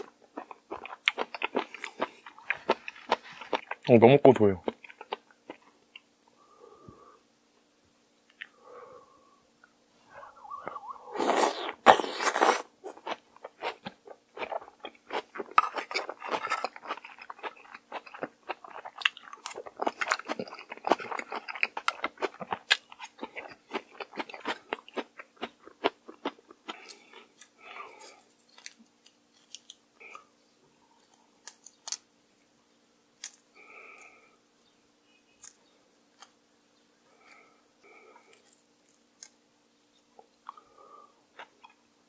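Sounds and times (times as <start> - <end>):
crunchy chewing: 0.0 - 3.9, 4.6 - 6.1, 10.2 - 30.3, 35.3 - 36.4, 37.1 - 39.4
shrimp shell being peeled: 28.4 - 29.9.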